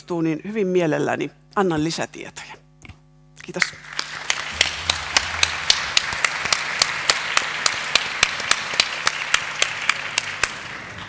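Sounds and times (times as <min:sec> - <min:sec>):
sharp close hand claps: 0:03.5 - 0:11.0
audience applauding: 0:03.7 - 0:11.0.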